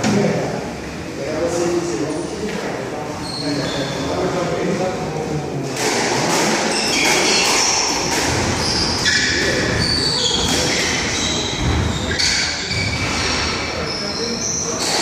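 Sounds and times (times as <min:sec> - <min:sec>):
rackets striking ball: 0:05.8 - 0:12.9
shoes squeaking on wooden floor: 0:06.7 - 0:14.8.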